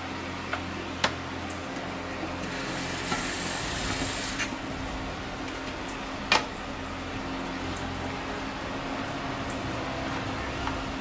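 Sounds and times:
steady low hum: 0.0 - 11.0
hiss: 2.4 - 5.9.

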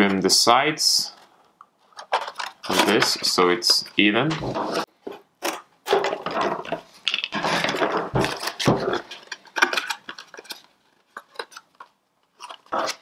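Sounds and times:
drink carton crinkling and scraping: 6.0 - 13.0.

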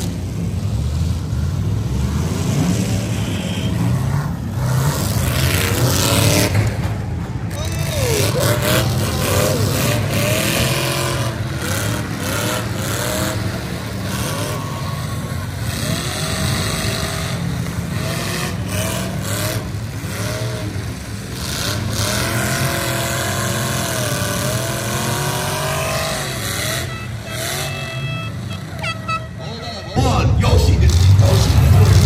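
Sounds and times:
truck engines revving: 0.0 - 32.0
trucks colliding bangs: 30.0 - 32.0.

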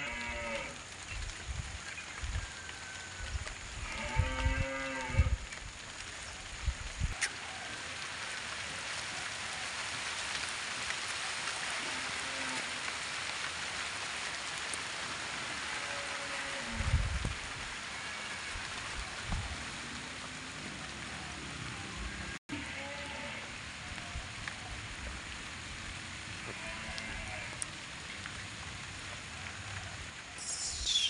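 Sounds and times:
rain falling: 0.0 - 31.0.

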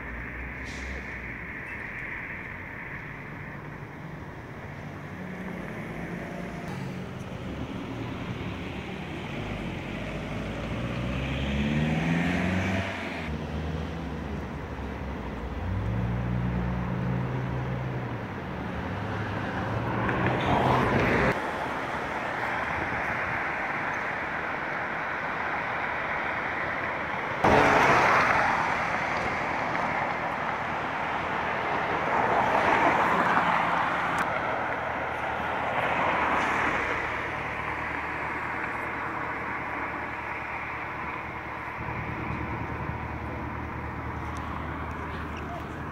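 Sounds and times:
tyres hissing on wet road: 0.0 - 3.8
low engine hum: 0.0 - 45.9.

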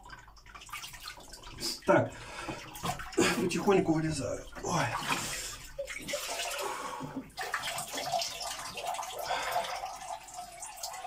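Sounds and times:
water sloshing and splashing: 0.0 - 11.0
water trickling: 0.0 - 11.0.

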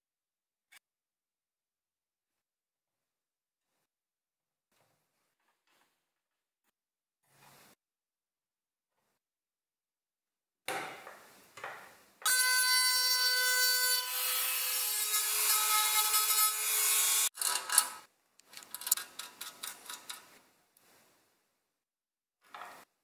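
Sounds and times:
rotary tool grinding metal: 12.3 - 18.0.

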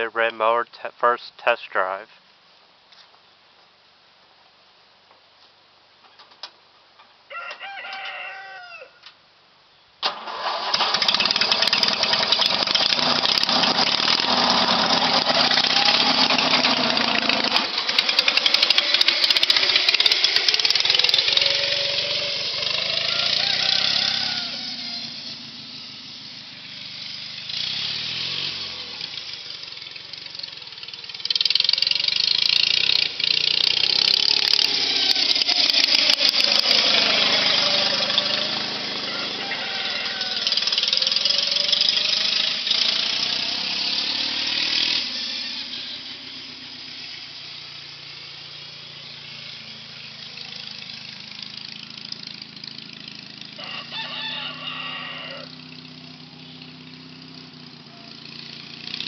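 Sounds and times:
rooster crowing: 7.3 - 9.1, 22.8 - 25.1, 38.4 - 41.3, 53.6 - 56.6
riding lawn mower engine: 10.0 - 59.0.

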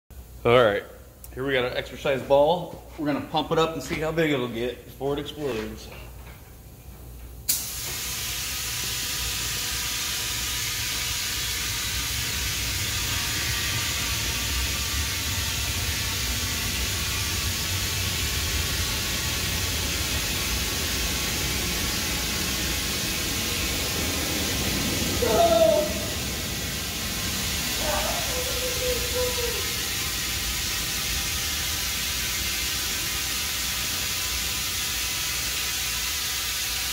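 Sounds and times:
compressed air hissing through hose: 7.5 - 36.9.

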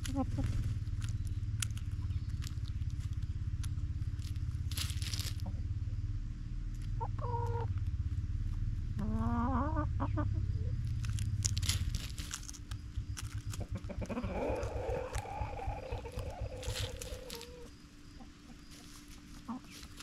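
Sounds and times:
pecking clicks: 0.0 - 5.3, 10.8 - 17.6
hens clucking: 0.0 - 5.8, 6.7 - 7.8, 8.9 - 20.0
low rumble: 0.0 - 18.2.

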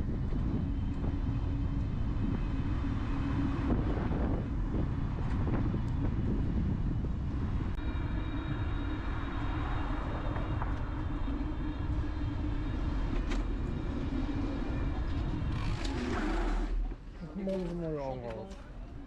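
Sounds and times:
wind on microphone: 0.0 - 16.9
steady whine: 0.0 - 17.7
bicycle tyres rolling over paving: 0.1 - 16.9.

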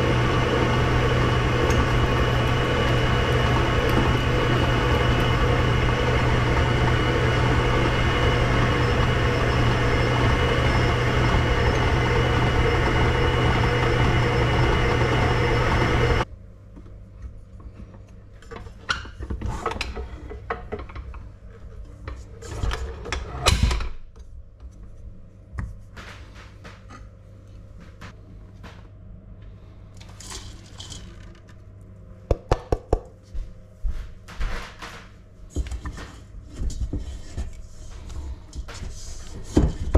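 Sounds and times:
stand mixer motor running: 0.0 - 16.2.

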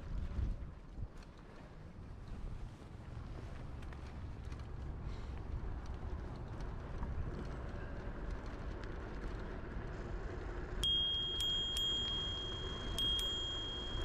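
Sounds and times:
tyres and wind rumble: 0.0 - 14.0
bicycle bell dinging: 10.8 - 14.0.

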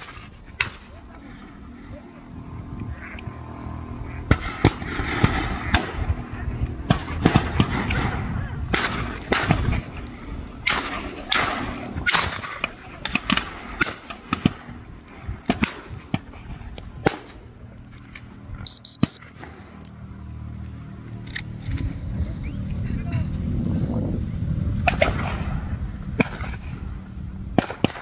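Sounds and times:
distant shotgun shots with echo: 4.1 - 9.9, 10.6 - 14.8, 24.8 - 25.5, 27.6 - 28.0.

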